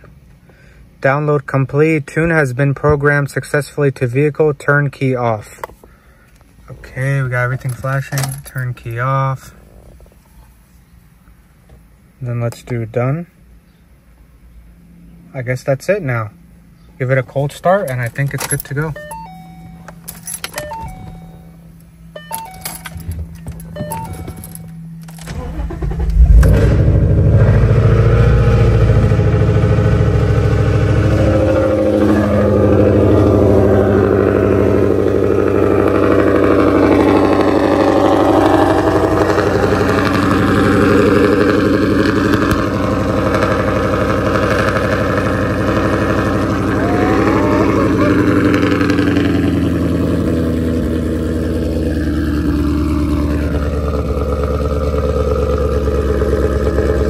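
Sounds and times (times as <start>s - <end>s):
car engine idling: 13.4s - 57.0s.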